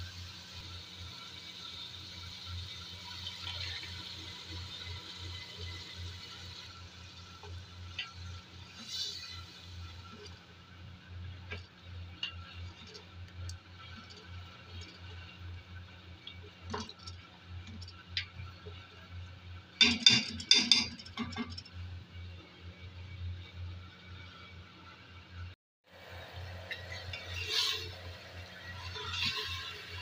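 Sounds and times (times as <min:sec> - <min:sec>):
spoon scraping and clinking a pot: 0:19.8 - 0:21.6.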